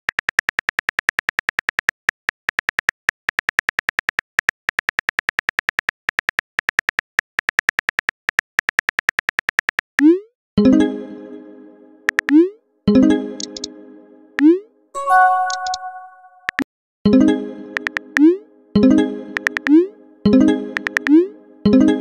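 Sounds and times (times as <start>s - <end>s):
phone keyboard typing clicks: 15.3s - 16.6s, 20.8s - 21.1s.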